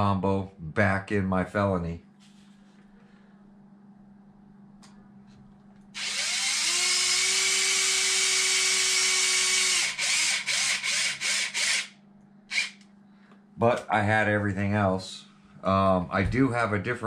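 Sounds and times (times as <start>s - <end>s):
cordless drill motor: 6.0s - 12.8s.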